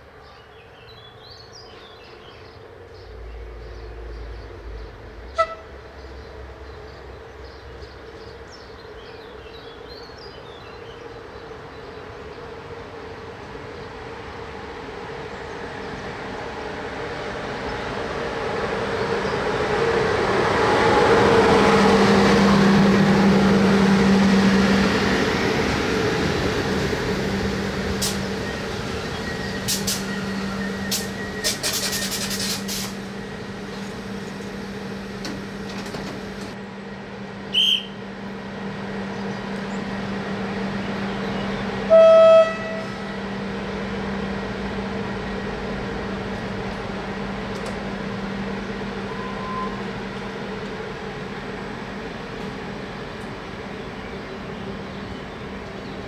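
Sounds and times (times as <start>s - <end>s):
train passing at speed: 0.0s - 56.0s
train horn toot: 5.3s - 5.8s, 41.8s - 43.2s, 49.0s - 49.8s.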